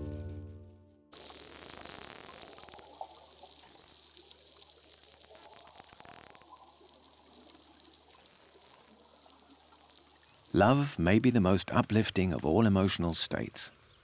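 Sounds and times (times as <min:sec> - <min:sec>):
steady high hiss: 0:01.1 - 0:11.9.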